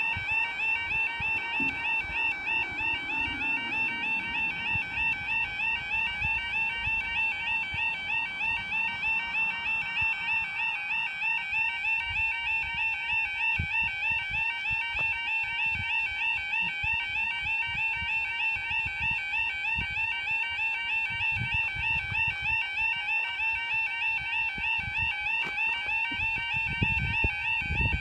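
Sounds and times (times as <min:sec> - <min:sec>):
level crossing warbling alarm: 0:00.0 - 0:19.1.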